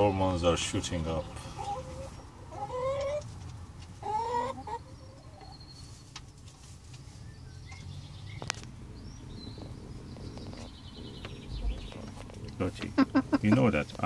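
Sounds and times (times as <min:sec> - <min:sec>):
hen calling: 0:04.0 - 0:05.8, 0:08.3 - 0:14.0.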